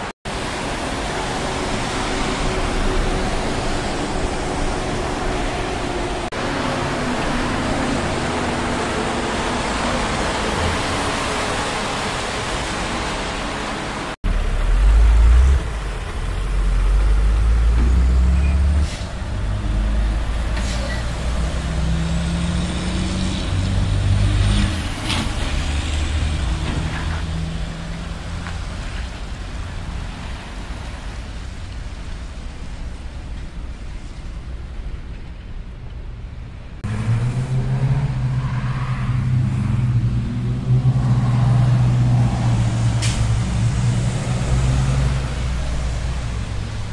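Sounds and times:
wet road traffic noise: 0.0s - 46.9s
truck diesel engine revving: 14.3s - 28.2s, 36.8s - 46.9s.

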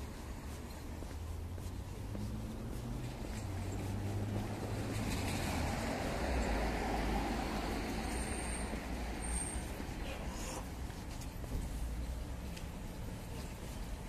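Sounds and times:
tyre noise: 0.0s - 6.9s
vehicle engine rumble: 0.0s - 14.0s.

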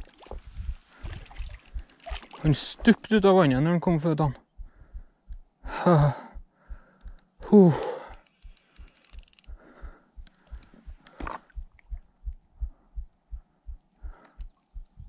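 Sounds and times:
fast ticks: 1.0s - 2.8s, 8.0s - 9.6s, 10.2s - 11.2s.

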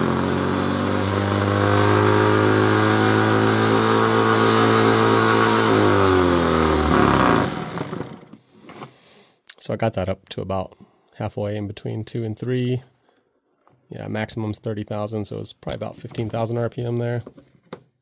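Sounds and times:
rotary tool whine: 0.0s - 8.4s.

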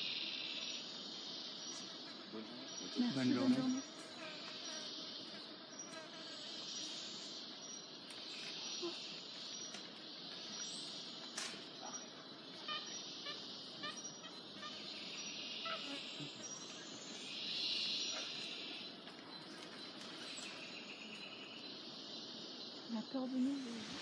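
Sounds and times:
insect chorus buzzing: 0.0s - 24.0s
bird chirps: 1.5s - 24.0s.

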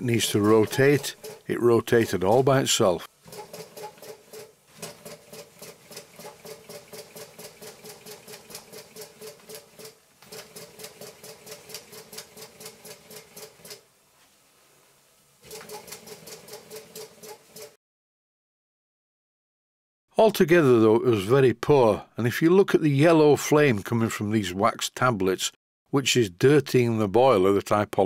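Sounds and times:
toy steam locomotive ticking: 0.2s - 2.6s.

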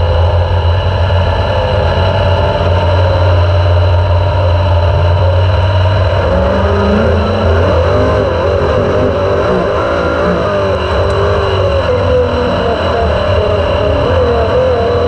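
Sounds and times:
race car engine revving: 0.0s - 15.0s
steady low rumble: 0.0s - 15.0s.

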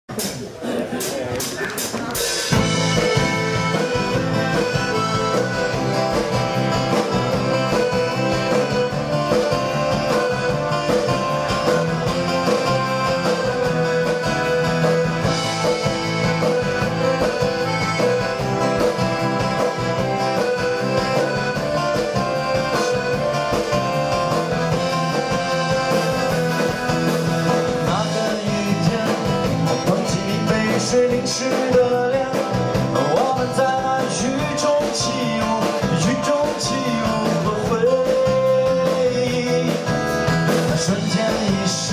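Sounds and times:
accordion: 2.2s - 41.9s
strummed acoustic guitars: 2.2s - 41.9s
electric bass: 2.5s - 41.9s
person singing: 27.6s - 41.9s.

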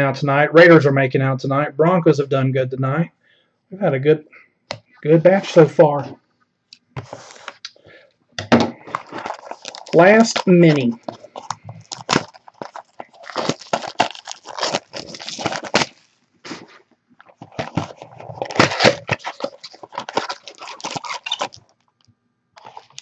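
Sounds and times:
packaging crackling and crinkling: 7.0s - 8.0s, 8.8s - 23.0s.

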